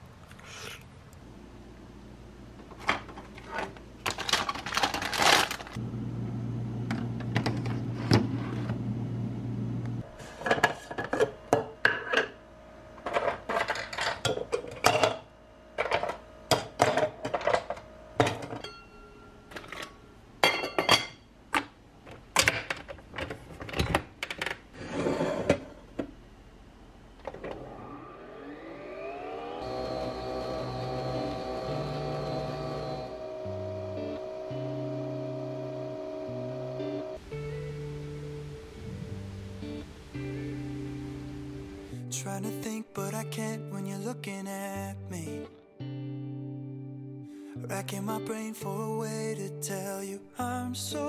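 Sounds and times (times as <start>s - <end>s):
low appliance hum: 0.0s - 42.4s
coffee machine whine: 2.9s - 20.0s, 27.2s - 37.8s
ice cubes clinking in plastic tumbler: 4.0s - 5.8s
kitchen handling clatter: 13.0s - 15.2s.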